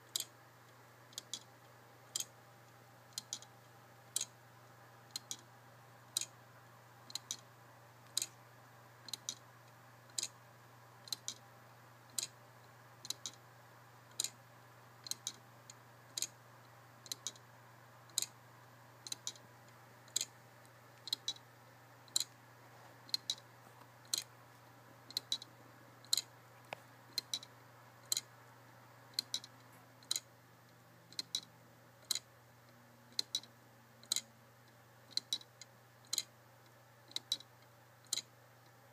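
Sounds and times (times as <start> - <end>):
wooden clock ticking: 0.0 - 0.3, 1.1 - 1.5, 2.1 - 2.4, 3.1 - 3.5, 4.1 - 4.4, 5.1 - 5.5, 6.1 - 6.4, 7.1 - 7.4, 8.1 - 8.4, 9.0 - 9.4, 10.1 - 10.4, 11.0 - 11.4, 12.1 - 12.4, 13.0 - 13.4, 14.1 - 14.4, 15.0 - 15.4, 16.1 - 16.4, 17.0 - 17.4, 18.1 - 18.4, 19.0 - 19.4, 20.1 - 20.4, 21.0 - 21.4, 22.1 - 22.3, 23.1 - 23.4, 25.1 - 26.3, 27.1 - 28.3, 29.1 - 30.3, 31.1 - 32.3, 33.1 - 34.3, 35.1 - 36.3, 37.1 - 37.5, 38.1 - 38.3.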